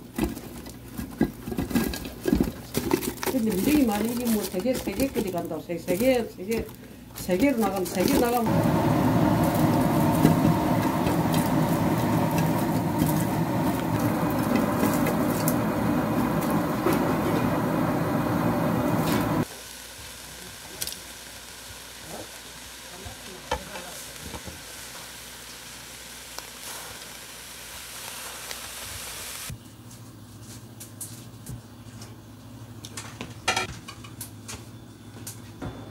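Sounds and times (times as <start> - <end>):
prawns sizzling in a pot: 7.1 - 29.6.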